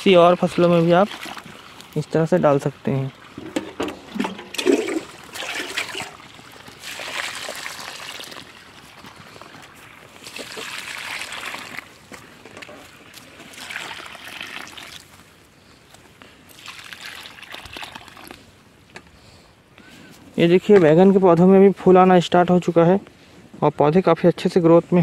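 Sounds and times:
liquid pouring onto soil: 0:00.3 - 0:15.2, 0:16.5 - 0:18.5.

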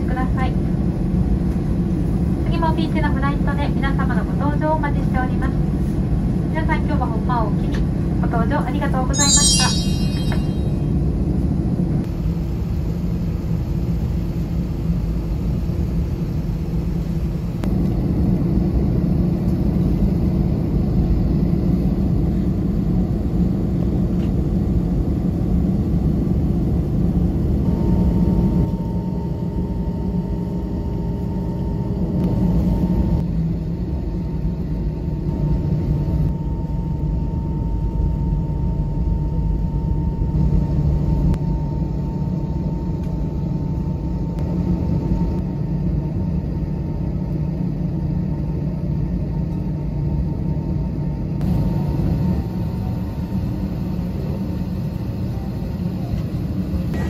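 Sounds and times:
faint steady whine: 0:27.6 - 0:57.0
jet engines rumbling: 0:37.8 - 0:57.0.

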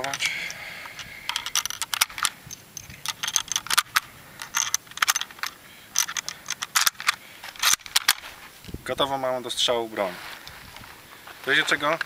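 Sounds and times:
rifle loading metallic clicks: 0:00.0 - 0:08.4.

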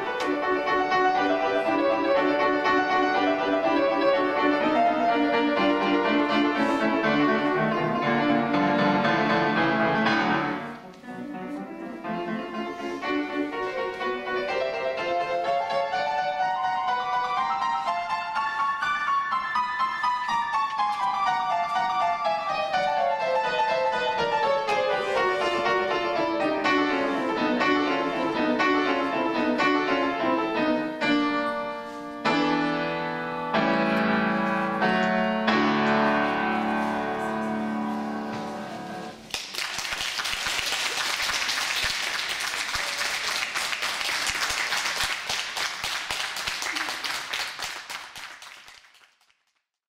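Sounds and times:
grand piano playing: 0:00.0 - 0:39.3
audience applause: 0:39.2 - 0:49.5.

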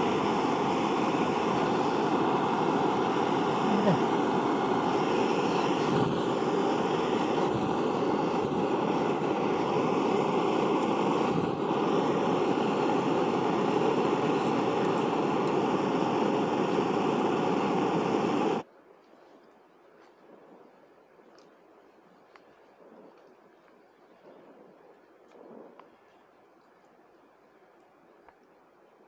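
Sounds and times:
rushing roar with faint whine: 0:00.0 - 0:18.6.

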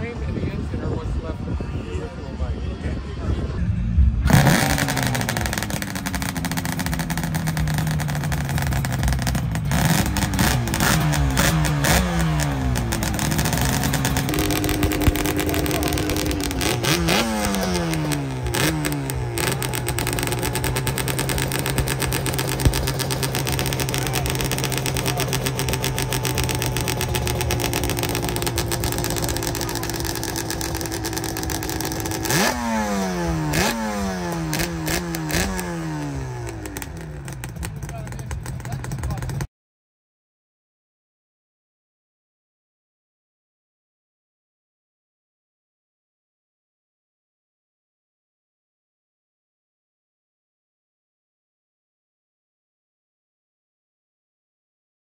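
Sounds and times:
motorcycle engines revving: 0:00.0 - 0:39.5.

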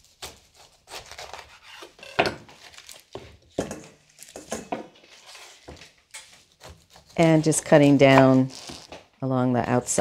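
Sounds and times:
knife scraping: 0:00.2 - 0:03.0, 0:04.2 - 0:09.0.

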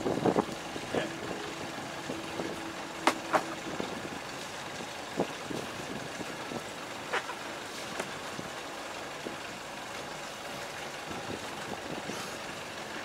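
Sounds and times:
knocks and thuds on boat deck: 0:03.0 - 0:03.9.

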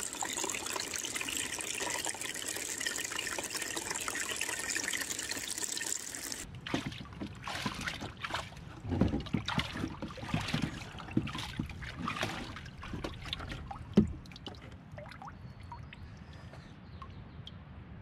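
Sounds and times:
water trickling and dripping: 0:00.0 - 0:08.4, 0:09.3 - 0:16.0
water sloshing in plastic tub: 0:06.4 - 0:15.6.

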